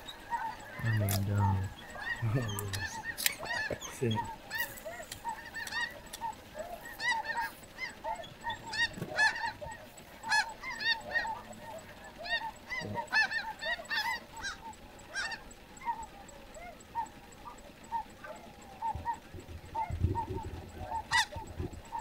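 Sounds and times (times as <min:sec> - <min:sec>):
geese honking: 0:00.0 - 0:22.0.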